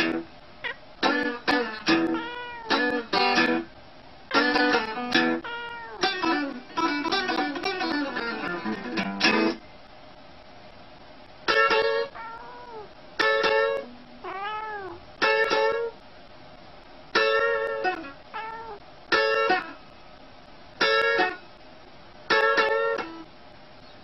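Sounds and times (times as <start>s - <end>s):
guitar plucked: 0.0s - 3.7s, 4.3s - 9.6s, 11.5s - 12.2s, 13.2s - 14.3s, 15.2s - 15.9s, 17.2s - 18.2s, 19.1s - 19.8s, 20.8s - 21.4s, 22.3s - 23.3s
cat meowing: 2.0s - 3.0s, 5.4s - 6.4s, 12.1s - 13.0s, 14.2s - 15.0s, 18.3s - 18.8s.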